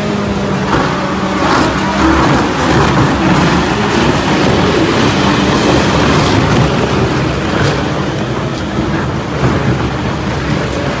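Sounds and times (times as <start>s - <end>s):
low engine drone: 0.0s - 11.0s
tyre shredder mechanical noise: 0.0s - 11.0s.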